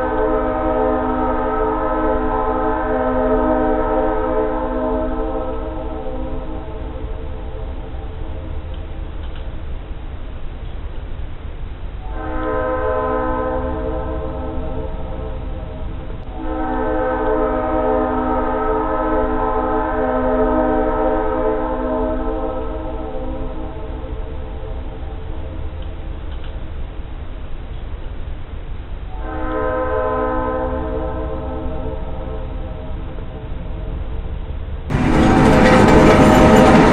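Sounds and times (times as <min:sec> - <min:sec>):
steam locomotive whistle blast: 0:00.0 - 0:06.5, 0:12.0 - 0:15.4, 0:16.3 - 0:23.3, 0:29.1 - 0:32.6
low rumble of moving train: 0:00.0 - 0:36.9.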